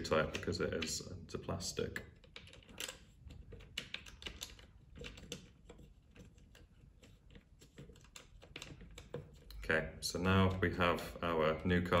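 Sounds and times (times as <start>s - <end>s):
allen key turning screws: 2.0s - 9.5s.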